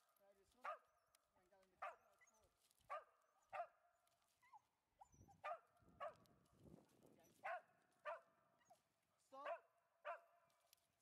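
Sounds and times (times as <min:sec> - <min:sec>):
dog barking: 0:00.6 - 0:00.9, 0:01.8 - 0:03.8, 0:05.3 - 0:06.2, 0:07.3 - 0:08.8, 0:09.4 - 0:10.4.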